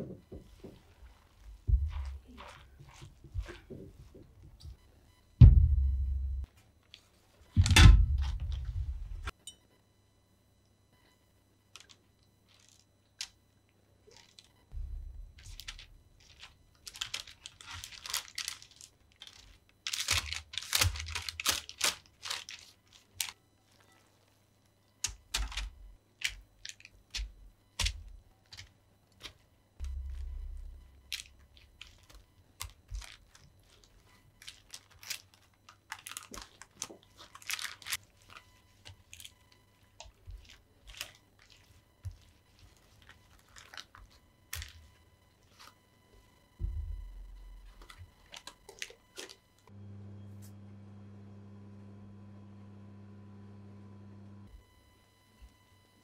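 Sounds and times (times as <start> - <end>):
baking parchment crinkling: 14.1 - 14.6, 15.3 - 24.4, 25.0 - 45.9, 47.4 - 49.7.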